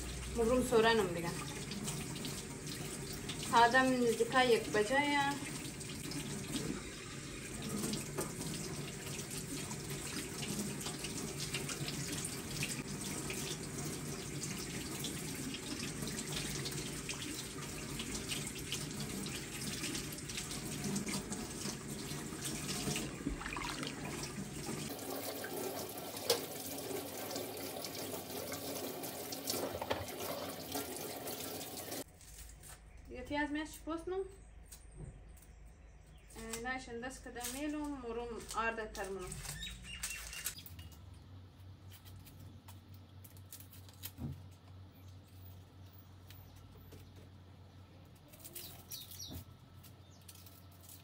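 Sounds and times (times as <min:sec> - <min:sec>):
tap running into a sink: 0:07.6 - 0:32.0
small water splashes: 0:14.4 - 0:32.0.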